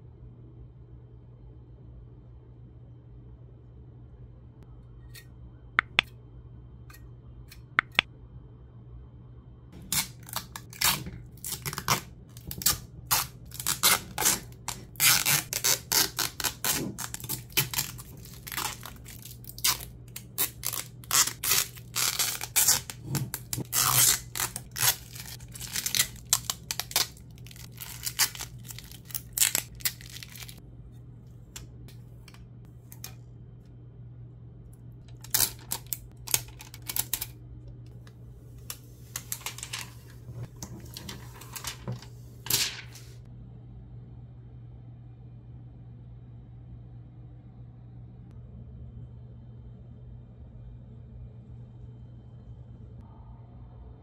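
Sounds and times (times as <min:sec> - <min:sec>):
low steady hum: 0:00.0 - 0:54.0
packaging being torn and crinkled: 0:09.8 - 0:30.6, 0:35.1 - 0:37.3.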